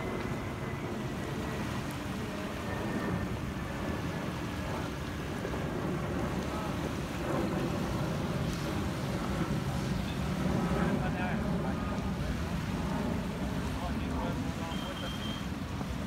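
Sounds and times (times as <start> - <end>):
wind buffeting microphone: 0.0 - 14.7, 15.4 - 16.0
small waves washing on shore: 0.0 - 16.0.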